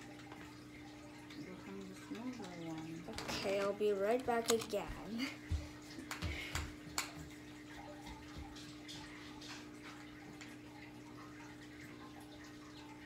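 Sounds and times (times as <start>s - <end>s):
small clicks and rustles: 2.2s - 5.0s.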